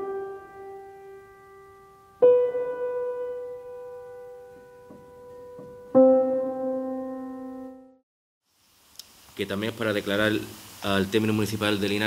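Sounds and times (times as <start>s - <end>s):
slow piano music: 0.0s - 8.0s.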